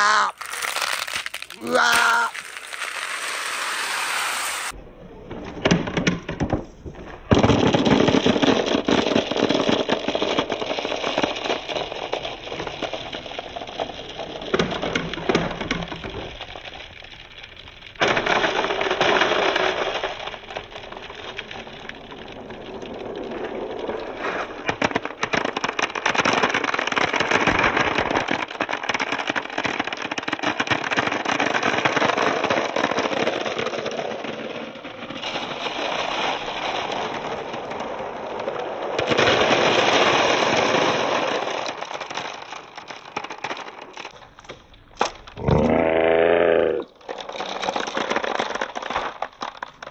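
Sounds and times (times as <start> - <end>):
glass marbles clattering: 0.0 - 4.7.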